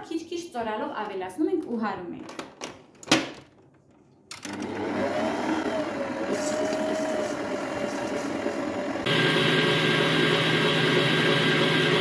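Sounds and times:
stand mixer motor running: 4.5 - 12.0.

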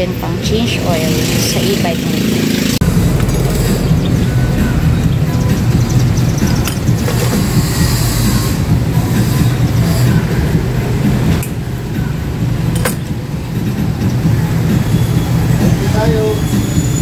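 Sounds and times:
low mechanical rumble: 2.8 - 17.0.

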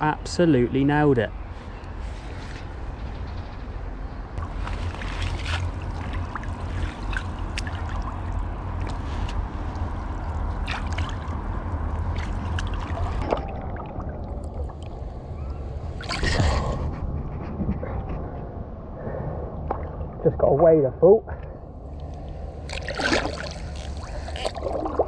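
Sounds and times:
steady low rumble: 1.2 - 25.0
legs splashing through water: 4.4 - 15.1, 15.9 - 16.9, 22.0 - 25.0.

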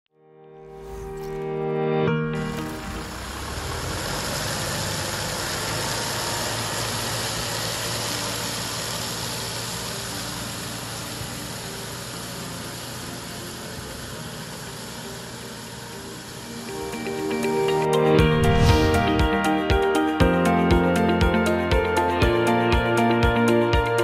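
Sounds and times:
tractor engine running: 2.3 - 24.0
spreader hiss: 2.5 - 17.8.

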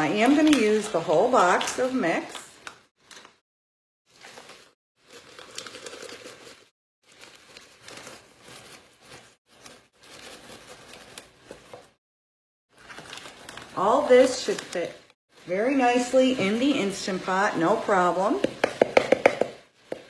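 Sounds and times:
paper pouch crinkling: 4.1 - 11.7, 12.7 - 14.8.

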